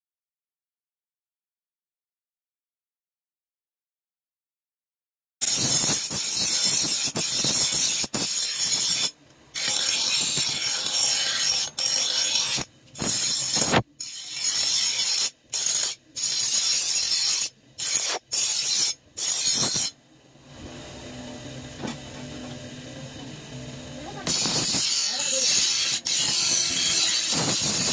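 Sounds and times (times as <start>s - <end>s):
blade grinding on grinder wheel: 5.4s - 19.9s, 24.0s - 27.9s
bench grinder humming: 5.5s - 15.1s, 20.5s - 27.9s.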